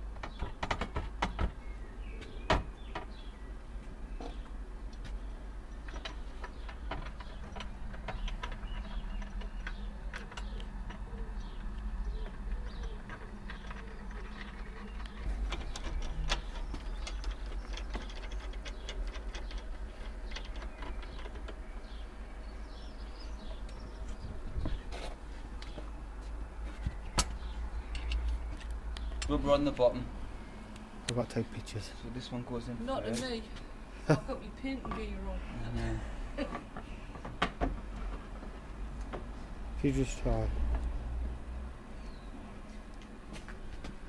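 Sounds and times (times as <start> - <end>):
metal boards clicking and knocking: 0.1 - 1.6, 5.8 - 21.7.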